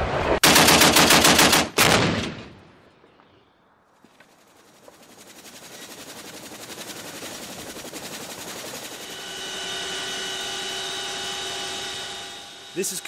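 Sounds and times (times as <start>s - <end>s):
helicopter rotor chop: 4.4s - 13.0s
turbine engine whine: 5.1s - 13.0s.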